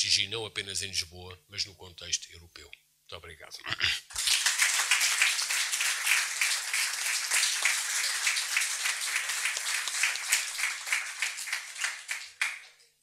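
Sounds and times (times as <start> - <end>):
audience applauding: 4.1 - 12.8.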